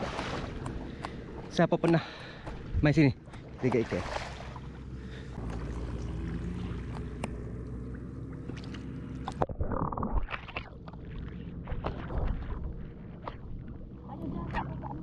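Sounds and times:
muddy water sloshing and splashing: 0.0s - 15.0s
wind rumble on microphone: 9.3s - 15.0s.

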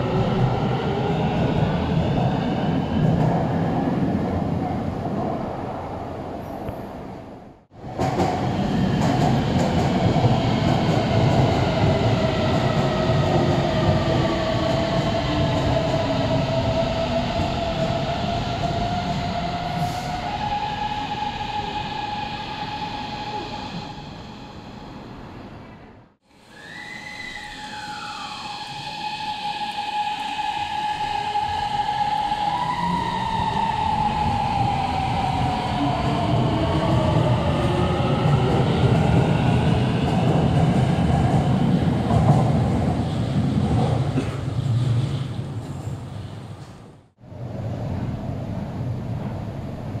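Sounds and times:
train inverter whining: 26.4s - 42.0s.

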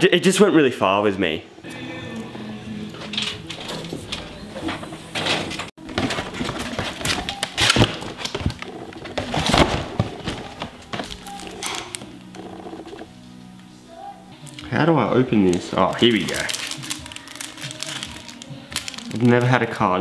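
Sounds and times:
packaging rustling and crackling: 5.8s - 13.0s, 15.4s - 19.6s.

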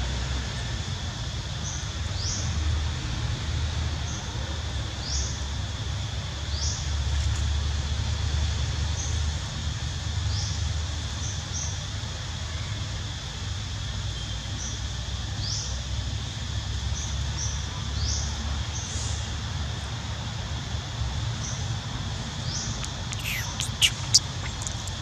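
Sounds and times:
short rising chirp: 22.8s - 25.0s.

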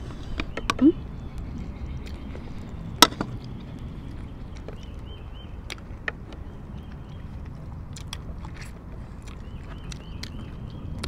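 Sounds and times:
people eating mouth sounds: 0.0s - 11.0s
wind rumble on microphone: 0.0s - 11.0s.

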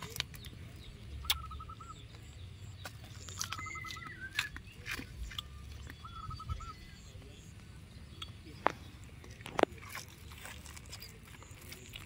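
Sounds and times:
sheep tearing and chewing weeds: 0.0s - 1.0s, 2.8s - 6.3s, 8.5s - 12.0s.

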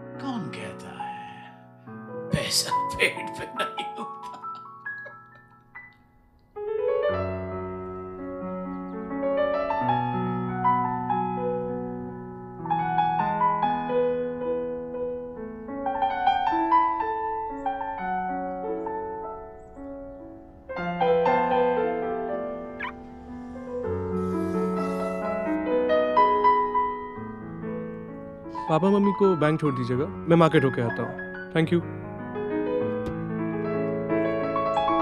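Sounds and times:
slow piano music: 0.0s - 35.0s.

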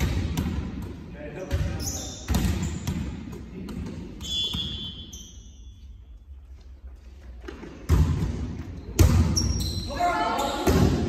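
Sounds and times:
shoe squeak: 1.7s - 2.8s, 4.2s - 6.2s, 8.8s - 10.7s
volleyball thudding: 7.5s - 9.5s.

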